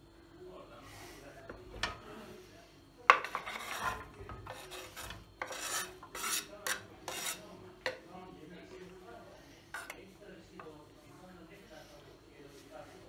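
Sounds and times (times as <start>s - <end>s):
knife scraping wooden cutting board: 3.2s - 7.5s.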